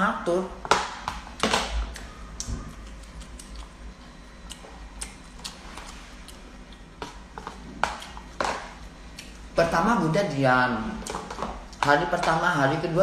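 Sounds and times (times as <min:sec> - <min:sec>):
chewing: 0:01.9 - 0:09.4.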